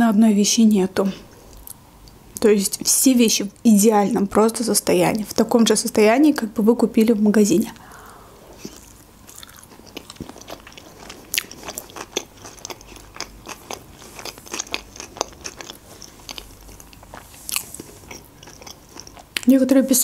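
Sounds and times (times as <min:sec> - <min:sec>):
chewing with wet mouth clicks: 0:08.6 - 0:19.5.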